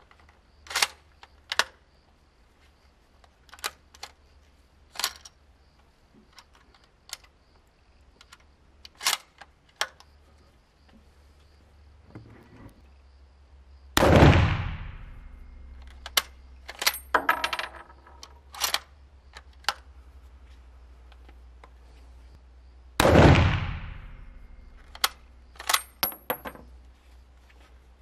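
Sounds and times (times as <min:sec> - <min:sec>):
rifle shots echoing: 0:14.0 - 0:15.8, 0:23.0 - 0:25.1.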